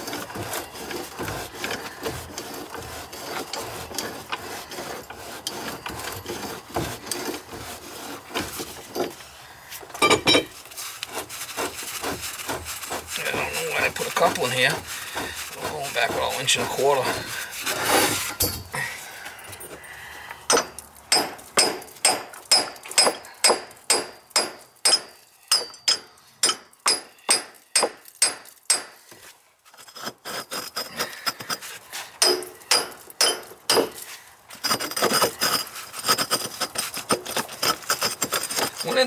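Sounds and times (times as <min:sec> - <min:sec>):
hand tool striking metal pipe: 0:10.0 - 0:10.5, 0:20.5 - 0:29.1, 0:32.2 - 0:34.0.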